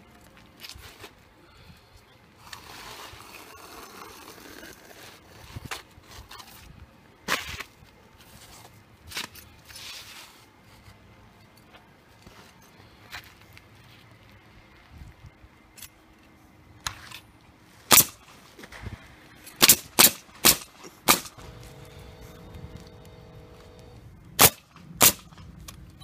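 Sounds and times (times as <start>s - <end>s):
shingles rustling and scraping: 2.4s - 14.4s.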